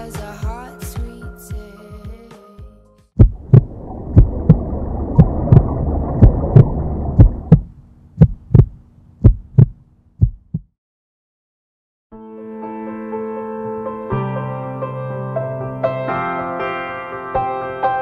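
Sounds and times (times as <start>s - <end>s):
muffled rushing noise: 3.2s - 10.6s
heartbeat thumps: 3.2s - 10.8s
soft piano music: 12.2s - 18.0s.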